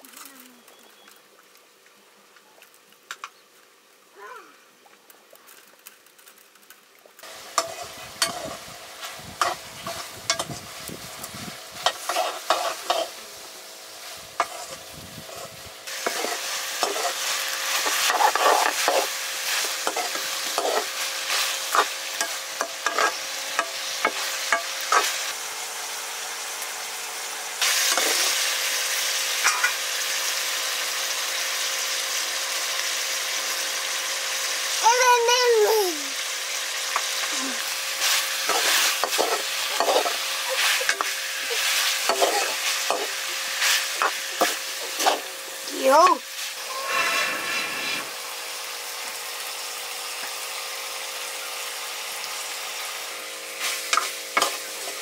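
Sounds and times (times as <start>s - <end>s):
food sizzling in a pan: 3.0s - 55.0s
spoon scraping and knocking pan: 11.8s - 13.1s, 17.8s - 20.9s, 21.7s - 25.2s, 38.4s - 40.2s.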